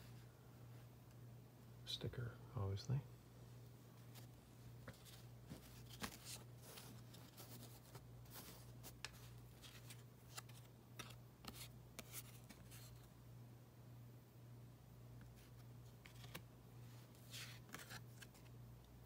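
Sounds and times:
cardboard cards rustling: 4.0s - 13.1s, 15.3s - 16.5s, 17.1s - 18.6s.

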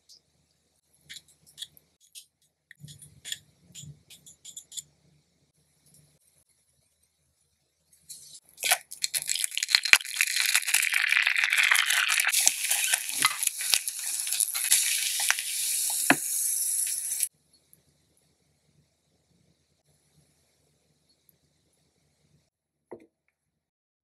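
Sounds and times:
egg sizzling in oil: 8.6s - 17.3s
oil popping: 8.6s - 17.3s.

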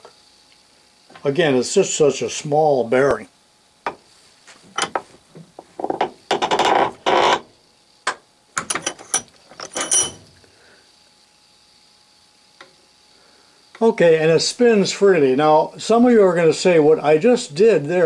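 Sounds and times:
bearing grating into housing: 8.6s - 10.4s.

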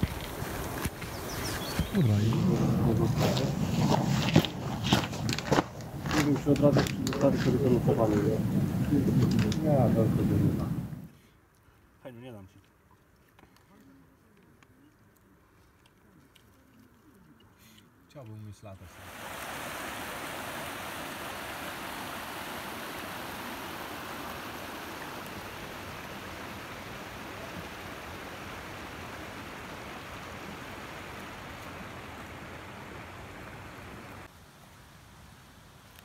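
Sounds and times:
stream rushing over rocks: 0.0s - 11.0s, 18.9s - 34.3s.

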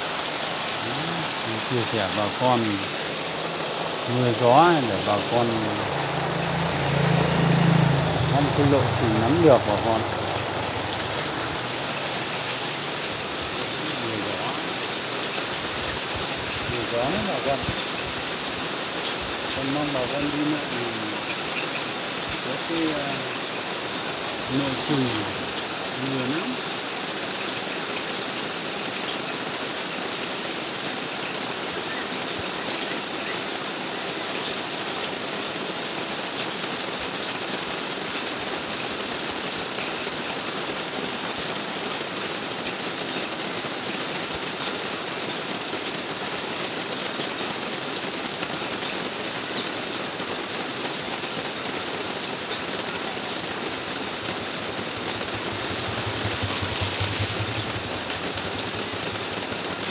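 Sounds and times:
motorbike passing: 0.0s - 15.8s, 17.0s - 26.8s, 52.8s - 59.9s
heavy rain on wet road: 0.0s - 59.9s.

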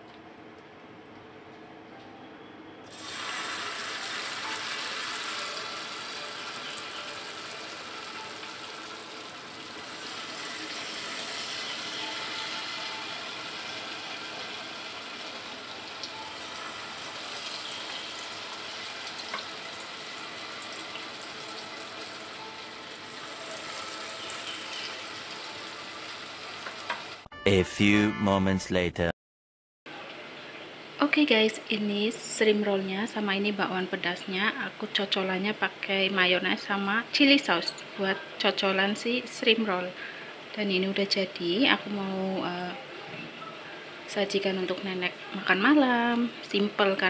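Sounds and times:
batter sizzling in hot oil: 2.9s - 27.3s.

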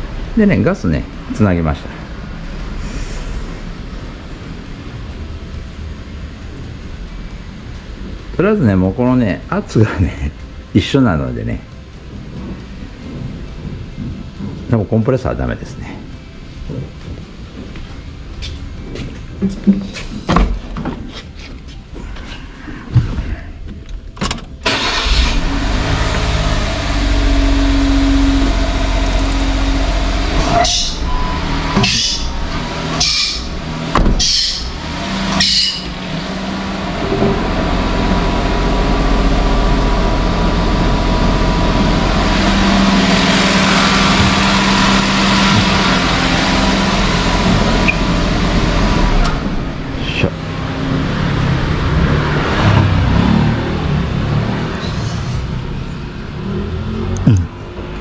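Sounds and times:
small car engine idling: 21.9s - 51.8s.

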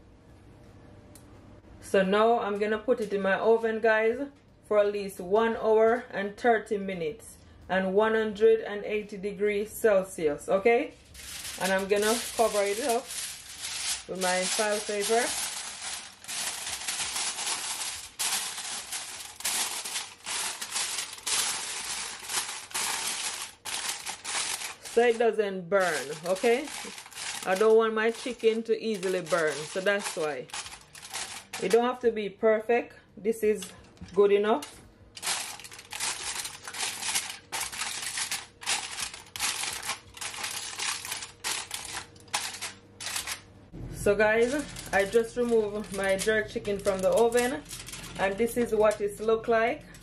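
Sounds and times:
aluminium foil crinkling: 10.9s - 32.0s, 33.5s - 43.5s, 44.4s - 50.0s.

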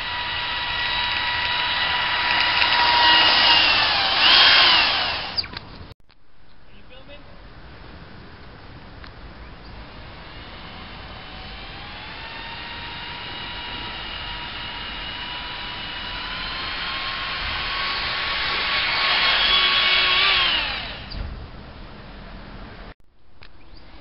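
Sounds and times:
electric ducted fan whining: 0.0s - 5.8s, 8.7s - 22.0s.

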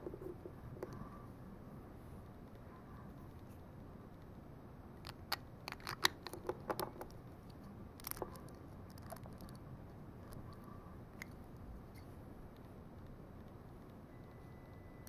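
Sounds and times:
plastic bricks clicking together: 5.0s - 7.1s.

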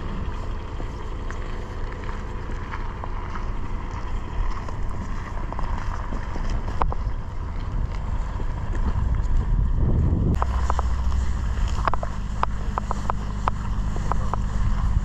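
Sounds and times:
wind buffeting microphone: 3.6s - 15.0s.

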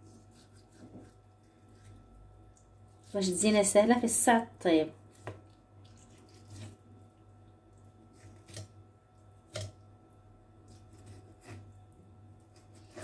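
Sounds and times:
knife cutting raw liver: 0.0s - 2.1s, 5.1s - 6.8s, 8.0s - 8.8s, 9.4s - 9.8s, 10.6s - 11.8s, 12.4s - 13.0s.

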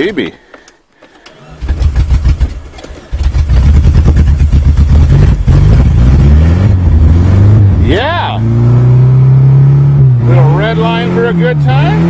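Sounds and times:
starter cranking engine: 1.0s - 5.1s
car engine running and revving: 1.6s - 12.0s.

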